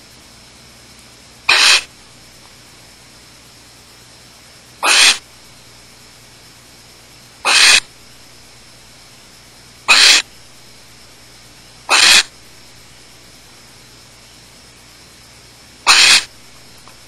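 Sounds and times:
barn owls hissing: 0:01.5 - 0:02.0, 0:04.8 - 0:05.4, 0:07.4 - 0:08.9, 0:09.8 - 0:13.4, 0:15.8 - 0:16.8.

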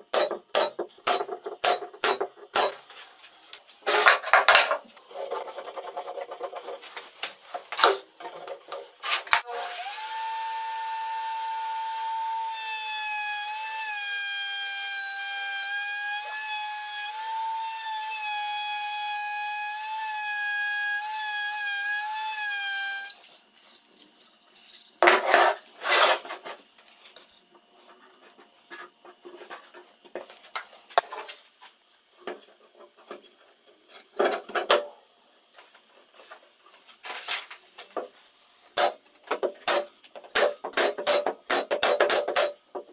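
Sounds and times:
router whining: 0:09.4 - 0:20.1.

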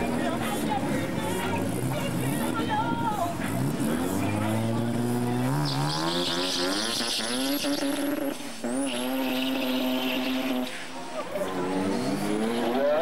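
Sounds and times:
race car engine revving: 0:00.0 - 0:13.0.

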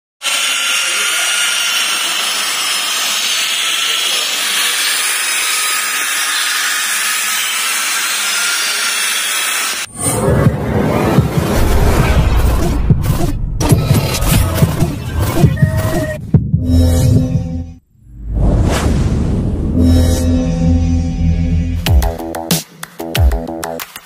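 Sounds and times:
low boom: 0:10.0 - 0:15.5, 0:17.9 - 0:21.9.

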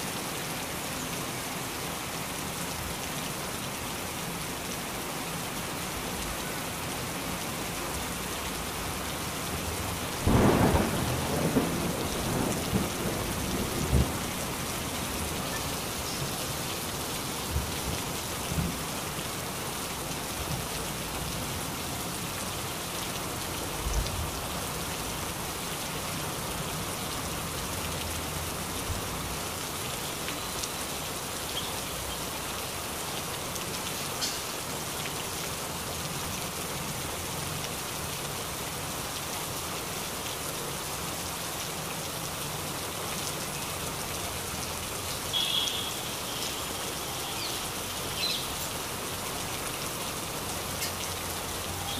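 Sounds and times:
heavy rain falling: 0:00.0 - 0:51.9
rumbling thunderclap: 0:10.2 - 0:14.3.

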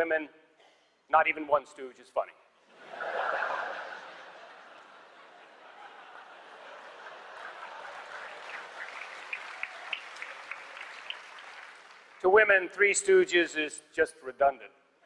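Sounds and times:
audience laughing: 0:02.7 - 0:09.9
audience clapping: 0:04.6 - 0:12.6.

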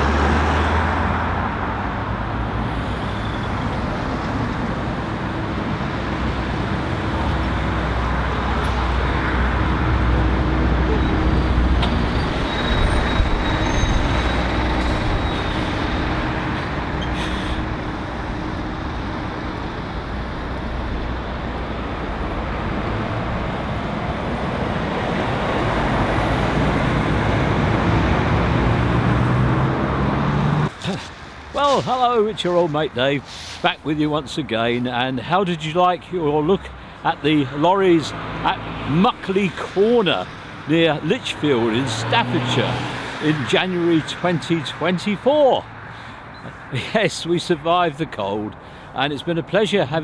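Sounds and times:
diesel lorry engines humming: 0:00.0 - 0:50.0
tyre noise of passing cars: 0:00.0 - 0:50.0
short hiss: 0:33.2 - 0:33.7.

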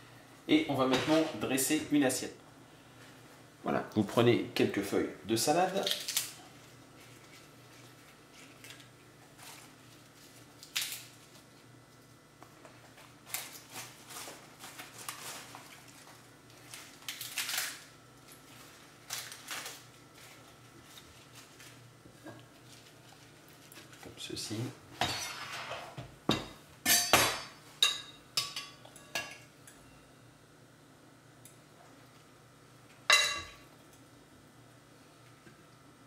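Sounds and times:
lettuce leaves rustling and crackling: 0:13.0 - 0:24.0.

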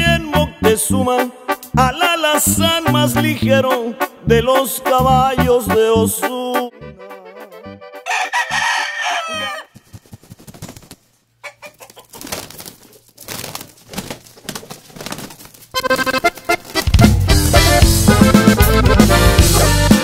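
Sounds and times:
rooster crowing: 0:08.0 - 0:09.8.

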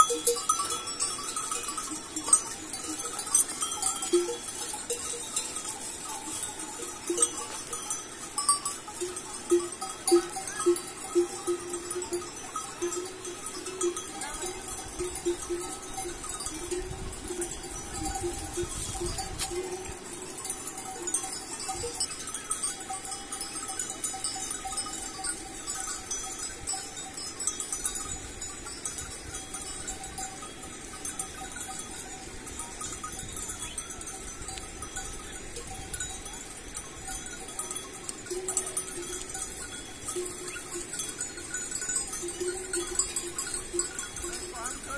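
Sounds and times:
animal bells clanking: 0:00.0 - 0:44.9.

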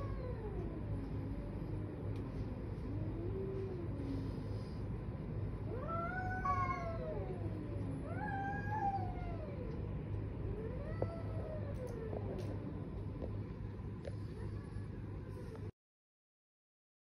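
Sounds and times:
cats yowling: 0:00.0 - 0:02.0, 0:05.7 - 0:12.6.

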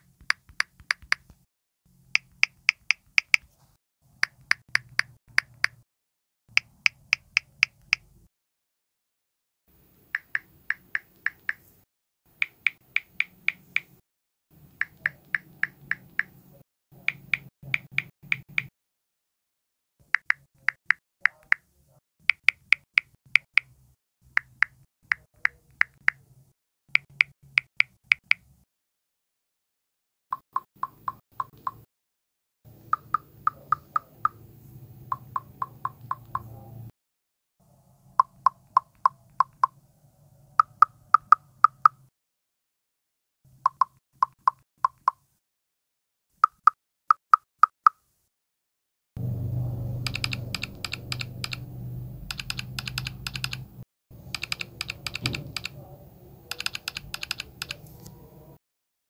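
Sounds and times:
phone keyboard tick sounds: 0:00.3 - 0:01.3, 0:02.2 - 0:03.5, 0:04.2 - 0:05.8, 0:10.2 - 0:11.6, 0:12.4 - 0:13.9, 0:14.8 - 0:16.4, 0:17.0 - 0:18.7, 0:30.4 - 0:31.8, 0:32.9 - 0:34.4, 0:35.1 - 0:36.5, 0:38.2 - 0:39.7, 0:43.7 - 0:45.2, 0:50.0 - 0:51.6, 0:52.3 - 0:53.7, 0:54.3 - 0:55.8, 0:56.5 - 0:57.8.

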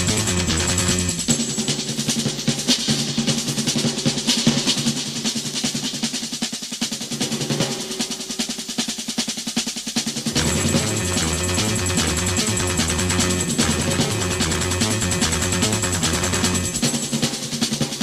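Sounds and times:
band section with bass line: 0:00.0 - 0:01.4, 0:10.3 - 0:17.0
snare drum roll: 0:00.0 - 0:18.0.

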